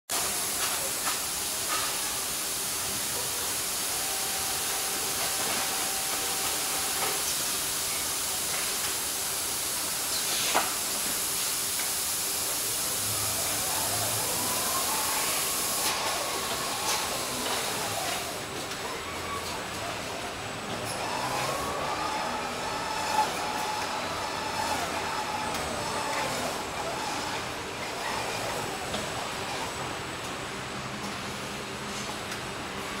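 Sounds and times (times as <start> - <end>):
machinery hiss: 0.1 - 18.6.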